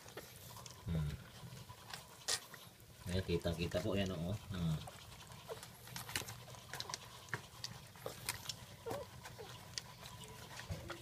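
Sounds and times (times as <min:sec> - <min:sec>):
dog licking and nuzzling: 0:00.0 - 0:11.0
puppies squeaking: 0:04.2 - 0:11.0.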